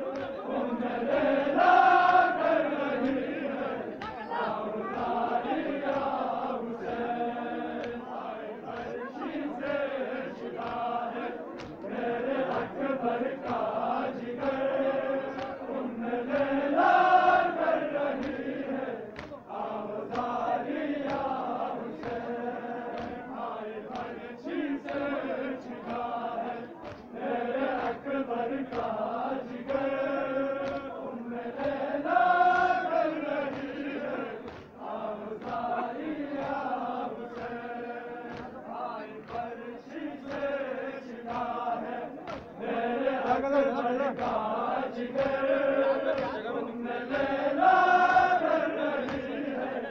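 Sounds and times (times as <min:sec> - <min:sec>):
crowd of men chanting: 0:00.0 - 0:49.9
sharp slaps: 0:00.1 - 0:00.4, 0:02.9 - 0:04.3, 0:09.6 - 0:15.8, 0:18.1 - 0:22.3, 0:22.9 - 0:23.3, 0:23.9 - 0:26.1, 0:26.8 - 0:31.0, 0:31.6 - 0:32.8, 0:33.4 - 0:46.5, 0:48.0 - 0:49.6.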